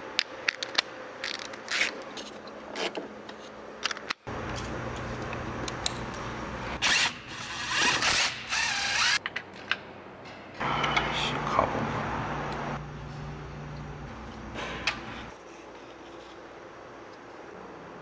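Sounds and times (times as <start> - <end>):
cordless power tool spinning: 6.8 - 9.2.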